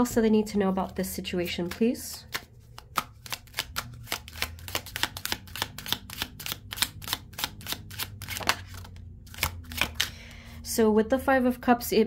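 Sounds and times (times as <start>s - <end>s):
cards being shuffled: 0.8s - 10.2s.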